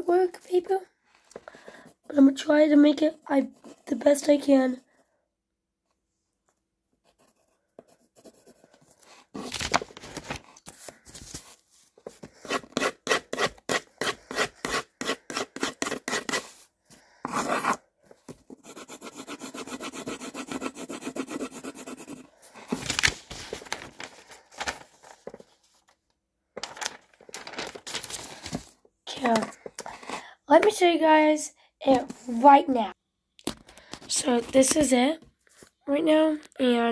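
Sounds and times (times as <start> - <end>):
pencil scratching on paper: 7.0 - 9.6, 11.4 - 22.8.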